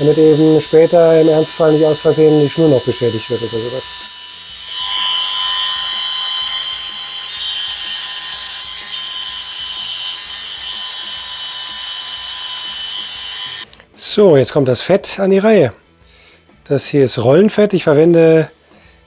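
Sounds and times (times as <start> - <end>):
rotary tool grinding metal: 0.0 - 13.7.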